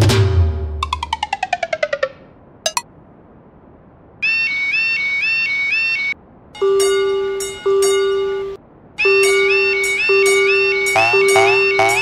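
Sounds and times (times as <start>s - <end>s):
fast warbling warning beep: 9.0s - 12.0s
pulsing pitched alarm tone: 9.0s - 12.0s.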